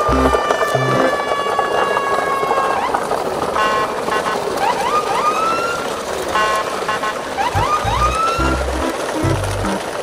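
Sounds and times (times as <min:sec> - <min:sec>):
short chord stabs: 0:00.0 - 0:01.1, 0:07.6 - 0:09.8
rising siren-like swoops: 0:00.0 - 0:01.7, 0:07.4 - 0:09.8.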